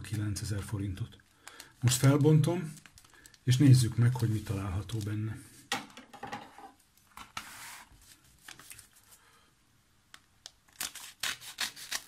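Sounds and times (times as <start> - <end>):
paper envelope rustling: 7.4 - 9.1
scissors snipping paper: 10.7 - 12.0.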